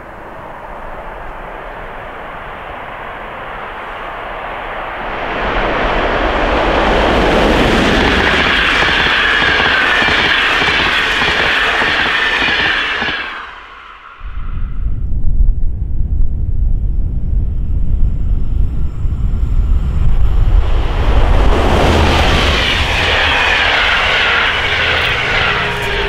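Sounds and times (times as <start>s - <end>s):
passing train hiss: 0.0s - 14.5s, 20.6s - 26.0s
train rumble: 0.0s - 26.0s.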